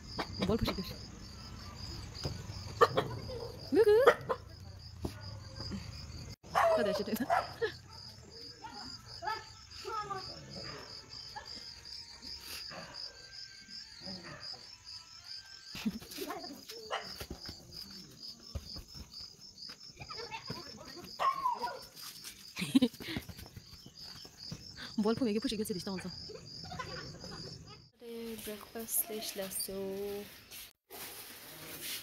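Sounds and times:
insects chirping: 0:00.0 - 0:30.6
faint children's voices: 0:07.8 - 0:11.6.

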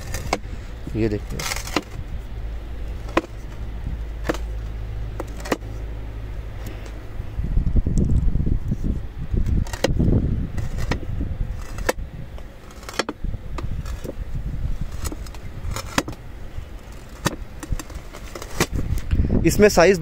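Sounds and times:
low rumble: 0:00.0 - 0:19.5.

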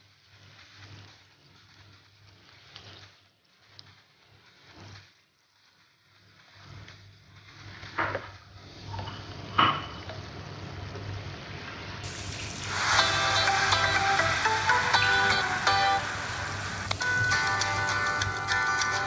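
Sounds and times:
fish sizzling in a frying pan: 0:11.4 - 0:19.0.

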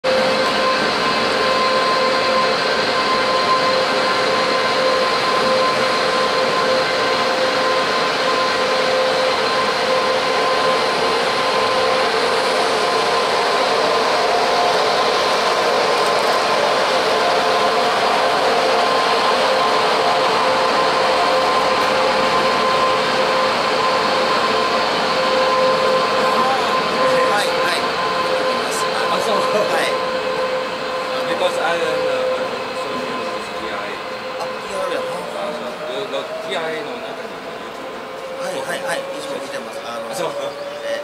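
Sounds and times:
electric train running hum: 0:00.0 - 0:41.0
electrical whine tones: 0:00.1 - 0:41.0.

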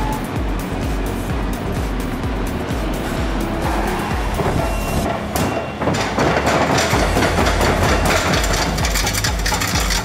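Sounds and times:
excavator diesel engine running: 0:00.0 - 0:10.0
machine knocks: 0:04.4 - 0:10.0.

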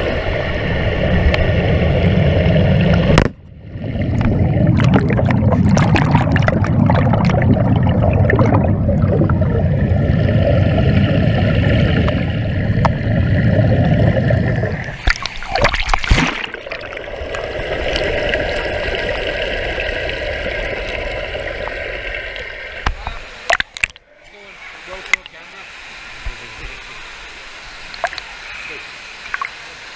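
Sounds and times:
underwater churning water and bubbles: 0:00.0 - 0:26.4, 0:27.0 - 0:28.5
knocks underwater: 0:02.9 - 0:08.8, 0:12.0 - 0:13.2, 0:14.9 - 0:18.0.

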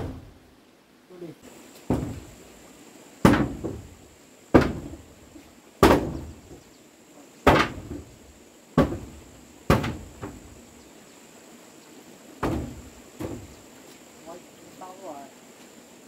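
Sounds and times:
heavy blows on wood: 0:00.0 - 0:00.4, 0:01.8 - 0:02.5, 0:03.2 - 0:05.2, 0:05.8 - 0:06.6, 0:07.4 - 0:08.2, 0:08.8 - 0:10.6, 0:12.4 - 0:13.7.

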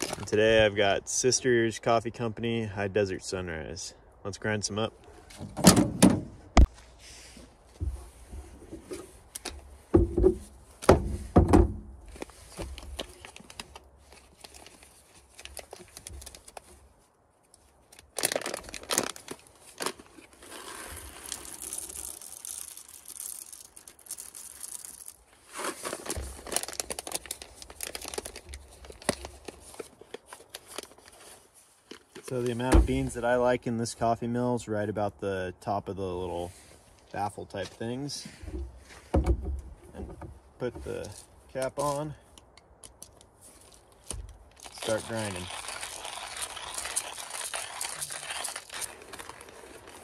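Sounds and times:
foil coffee bag crinkling: 0:00.0 - 0:00.4, 0:12.2 - 0:16.8, 0:17.9 - 0:33.1, 0:43.5 - 0:50.0
coffee beans poured into grinder: 0:20.8 - 0:25.1, 0:44.7 - 0:49.5.

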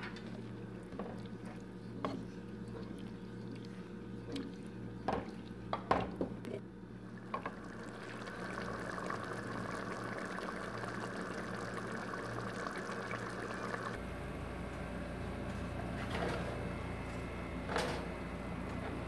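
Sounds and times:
low steady hum: 0:00.0 - 0:19.0
sauce simmering and bubbling: 0:06.9 - 0:14.0.

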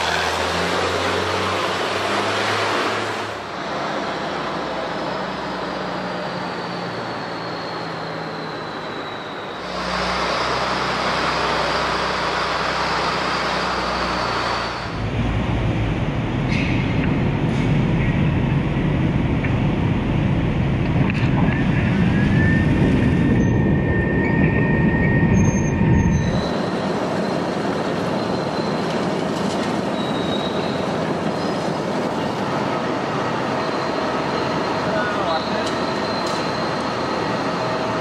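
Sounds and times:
heavy low rumble: 0:14.9 - 0:26.7.

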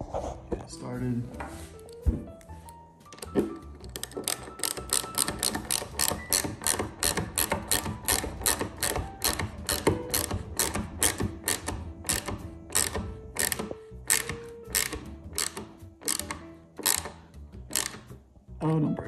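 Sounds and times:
ratchet clicking: 0:03.2 - 0:18.2.

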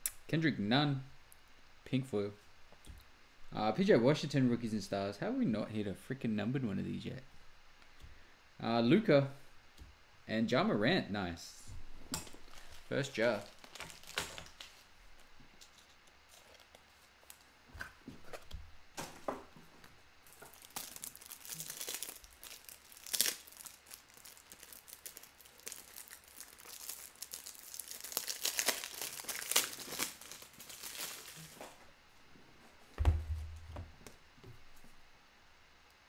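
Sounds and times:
foil wrapper crinkling and tearing: 0:12.3 - 0:14.9, 0:15.6 - 0:17.5, 0:20.3 - 0:31.8
low thump: 0:33.0 - 0:33.9.

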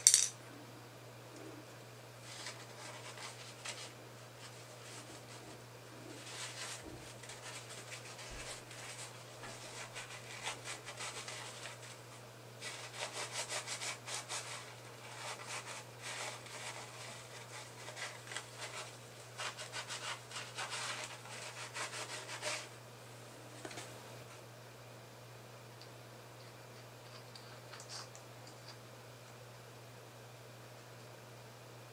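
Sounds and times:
paper towel rubbing plastic part: 0:02.2 - 0:22.7.

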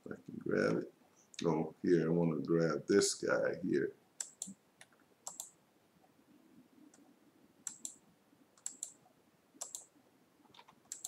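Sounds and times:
computer mouse clicking: 0:04.2 - 0:05.6, 0:06.9 - 0:08.0, 0:08.6 - 0:09.0, 0:09.6 - 0:09.9, 0:10.5 - 0:11.0.

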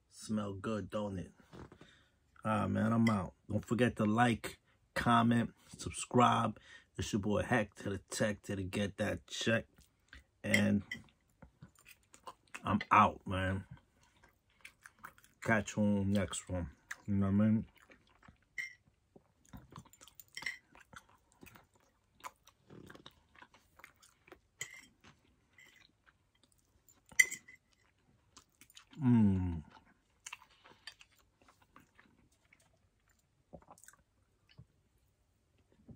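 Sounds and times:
close-up chewing: 0:13.8 - 0:15.5, 0:16.1 - 0:34.7.

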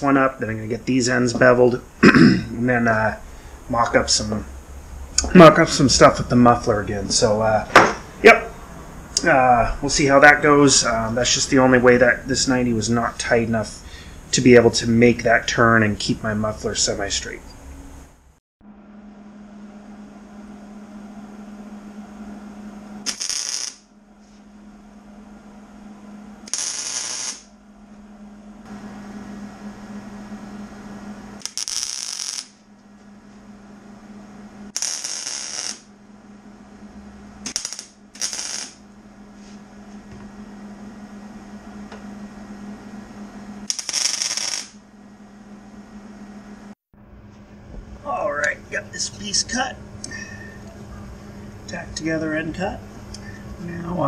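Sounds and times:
steady low hum: 0:00.0 - 0:54.0
arc welder crackling bursts: 0:23.0 - 0:23.9, 0:26.4 - 0:27.6, 0:31.4 - 0:32.7, 0:34.7 - 0:35.9, 0:37.4 - 0:38.9, 0:43.6 - 0:44.8.

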